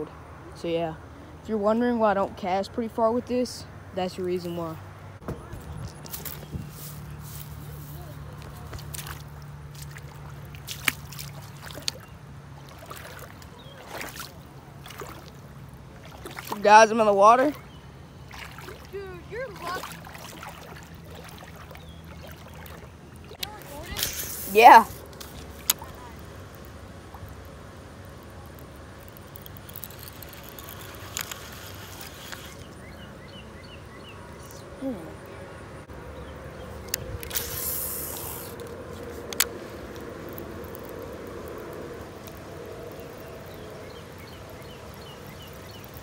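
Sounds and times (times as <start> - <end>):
faint water noise: 0.0 - 46.0
wind rumble on microphone: 5.2 - 7.6
fishing lure clicking and splashing: 21.6 - 32.8, 36.8 - 46.0.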